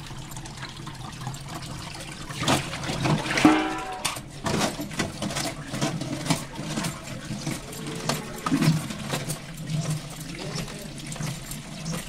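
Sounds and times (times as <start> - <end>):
tap water running into colander: 0.0 - 12.0
mushrooms clattering in colander: 2.5 - 12.0.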